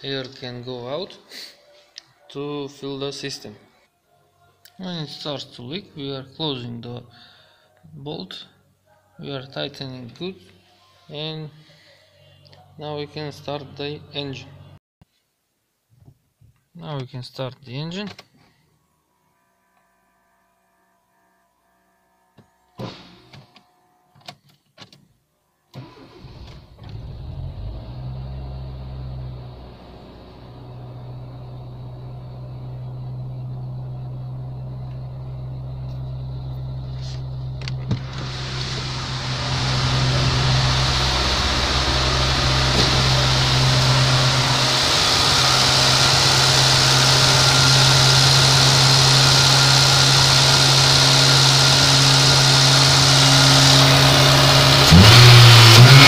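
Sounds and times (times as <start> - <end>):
car engine starting and idling: 25.8 - 56.0.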